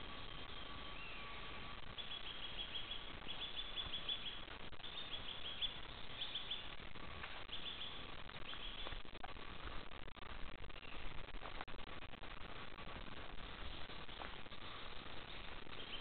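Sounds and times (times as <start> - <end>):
songbird singing: 0.0 - 9.3, 10.5 - 11.3, 13.4 - 16.0
steady hiss: 0.0 - 16.0.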